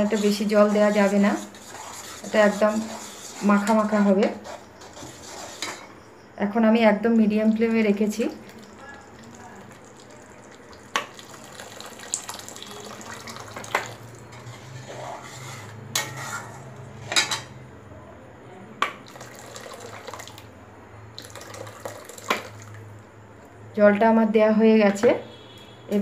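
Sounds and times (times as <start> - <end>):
hot water pouring: 8.3 - 16.1, 19.0 - 20.5, 21.1 - 23.0.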